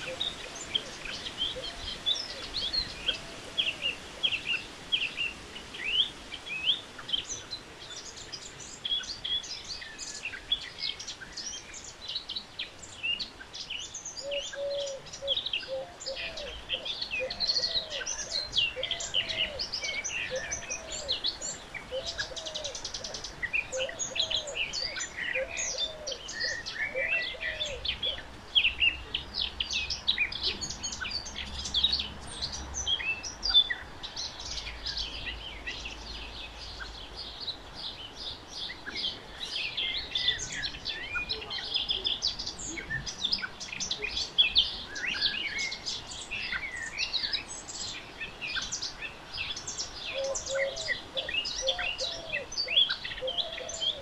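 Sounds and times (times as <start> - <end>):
songbirds chirping and twittering: 0.0 - 54.0.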